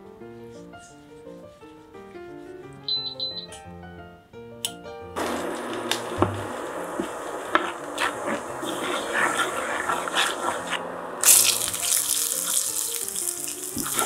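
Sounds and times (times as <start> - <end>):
pepper flakes sizzling in oil: 5.2 - 14.0.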